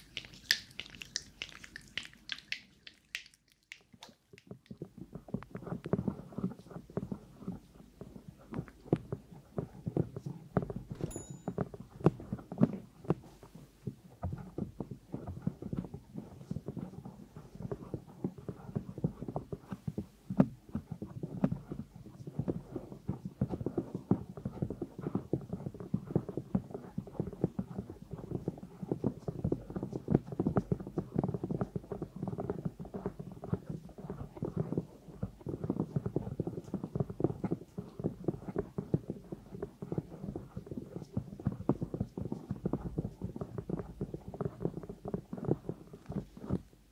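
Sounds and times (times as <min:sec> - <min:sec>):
nails tapping on microphone: 0:10.1 - 0:13.3.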